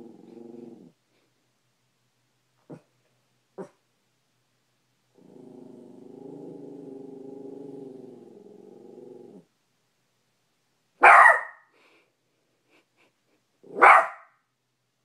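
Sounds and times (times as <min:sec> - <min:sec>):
dog growling: 0:00.0 - 0:01.0, 0:05.1 - 0:09.5
dog barking: 0:03.6 - 0:03.8, 0:11.0 - 0:11.7, 0:13.7 - 0:14.4.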